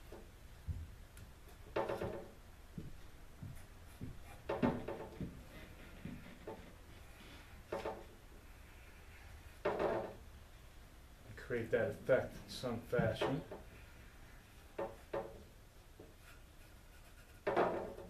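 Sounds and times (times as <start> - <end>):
pencil scratching on wood: 16.0 - 18.0.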